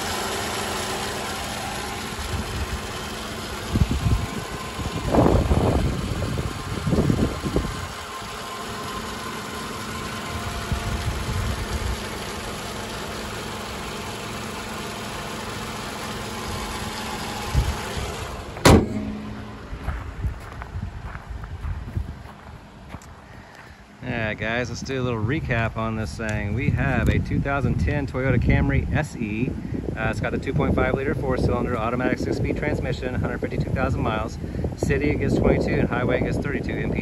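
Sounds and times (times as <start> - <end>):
car engine idling: 0.0 - 37.0
handling rumbles: 16.5 - 23.1
car hood slamming shut: 18.6 - 19.6.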